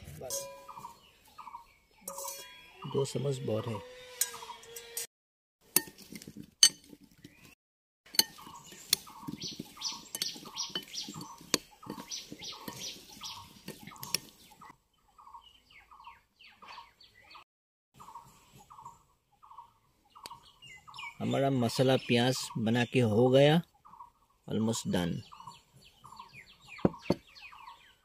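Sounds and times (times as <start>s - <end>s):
spoon scraping glass bowl: 8.1s - 14.3s
bird calling: 8.2s - 17.4s, 25.2s - 28.0s.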